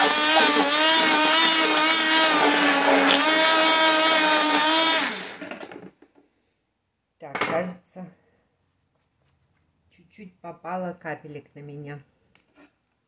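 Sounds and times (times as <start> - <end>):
immersion blender motor whine: 0.0 - 5.8.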